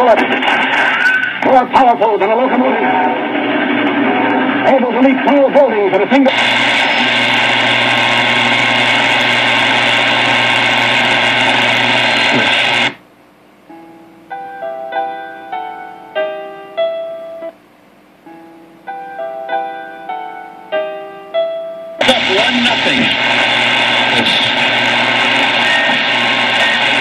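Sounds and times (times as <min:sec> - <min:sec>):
radio speaker hiss and hum: 0:00.0 - 0:13.0, 0:22.0 - 0:27.0
plinking piano-like tune: 0:13.7 - 0:17.5, 0:18.3 - 0:22.0.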